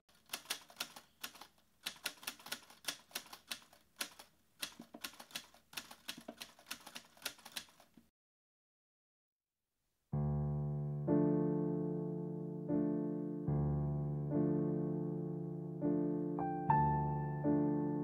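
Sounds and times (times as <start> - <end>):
typewriter keystroke clicks: 0.2 - 7.9.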